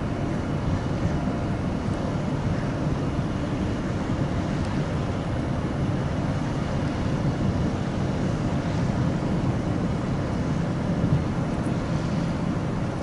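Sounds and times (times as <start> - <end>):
ship engine rumble: 0.0 - 13.0
wind on microphone: 0.0 - 13.0.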